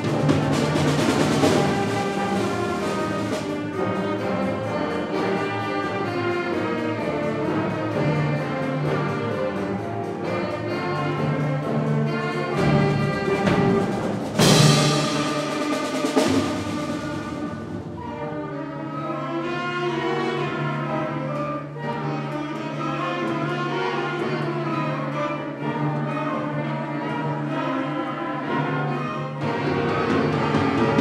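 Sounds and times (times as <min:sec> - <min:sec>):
concert band playing chords: 0:10.3 - 0:18.0.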